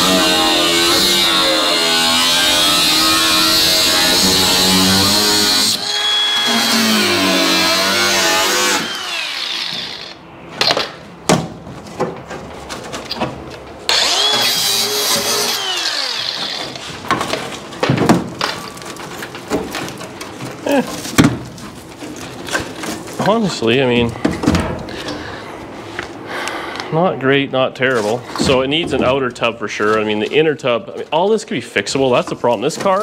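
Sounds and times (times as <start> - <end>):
angle grinder cutting steel: 0.0 - 10.2, 13.9 - 16.8.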